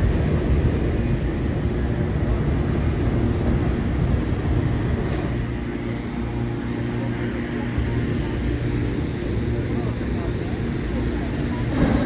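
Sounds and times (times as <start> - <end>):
propane burner blast: 7.7 - 12.0.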